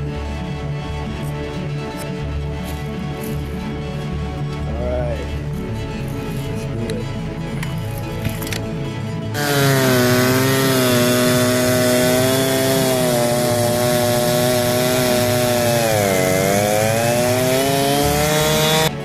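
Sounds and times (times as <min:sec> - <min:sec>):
chainsaw cutting log: 0:09.4 - 0:19.0.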